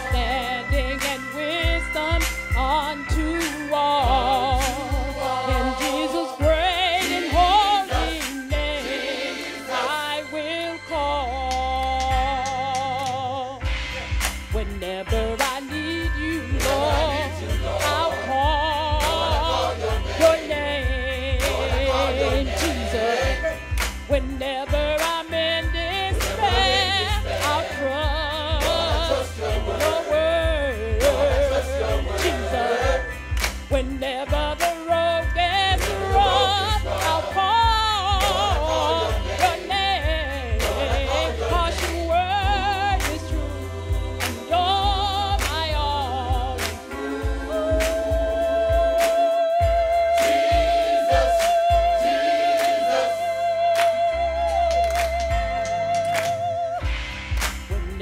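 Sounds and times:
choir singing: 0.0s - 11.4s, 14.9s - 56.9s
lead singer: 0.0s - 58.0s
hands clapping: 1.0s - 1.4s, 3.4s - 6.3s, 7.0s - 10.0s, 11.5s - 15.8s, 16.6s - 25.4s, 26.1s - 30.4s, 31.0s - 48.2s, 49.0s - 58.0s
deep bass line: 11.0s - 58.0s.

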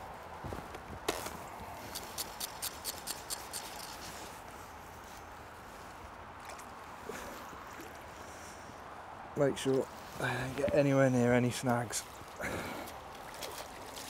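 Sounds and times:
fly reel clicking: 1.9s - 4.0s.

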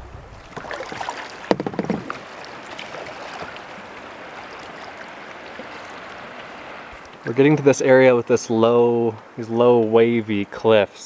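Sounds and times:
water rushing along kayak hulls: 0.0s - 11.0s
sharp knocks and splashes: 0.4s - 7.3s.

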